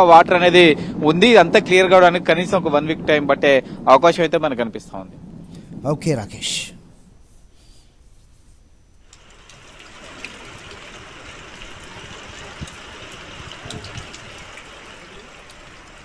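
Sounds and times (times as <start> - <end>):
small splashes and ticks: 9.0 - 16.0
floodwater rushing: 9.1 - 16.0.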